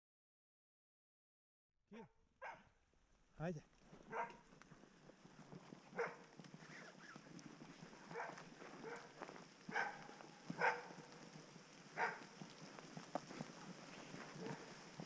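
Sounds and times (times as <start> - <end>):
dog barking: 1.9 - 2.7, 4.1 - 4.4, 5.9 - 6.2, 8.1 - 9.1, 9.7 - 11.1, 12.0 - 12.2, 14.4 - 14.7
running through leaf litter: 3.8 - 15.0.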